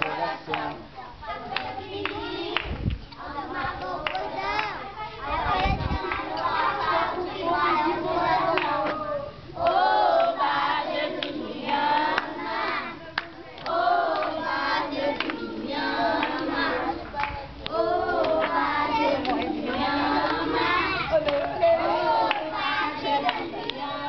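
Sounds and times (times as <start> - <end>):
children singing: 0.0 - 24.0
hand claps: 4.0 - 4.8, 19.2 - 20.4.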